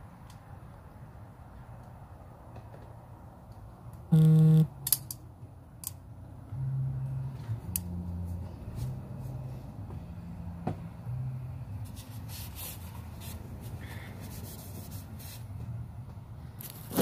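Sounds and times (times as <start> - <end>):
hands rubbing and rustling parts: 11.8 - 17.0.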